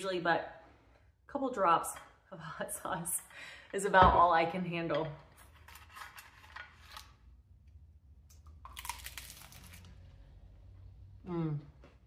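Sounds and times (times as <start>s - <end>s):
crunching taco shell: 8.3s - 10.0s.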